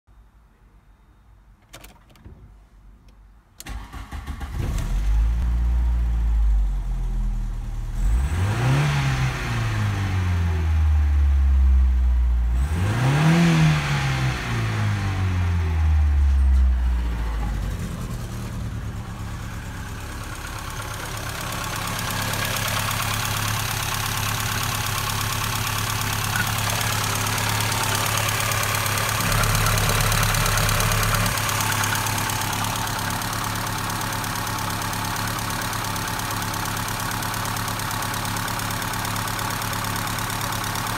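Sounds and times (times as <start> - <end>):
car engine cranking and idling: 3.6 - 40.9
engine revving: 7.9 - 11.4, 12.4 - 16.0, 16.9 - 39.3.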